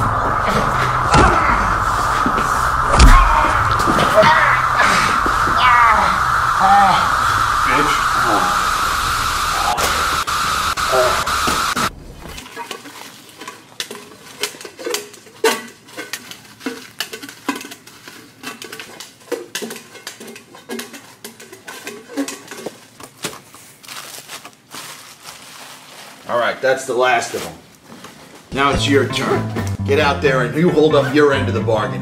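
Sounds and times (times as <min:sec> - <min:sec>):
loud steady hiss: 0:00.0 - 0:12.4
dishes and utensils clattering: 0:12.4 - 0:23.1.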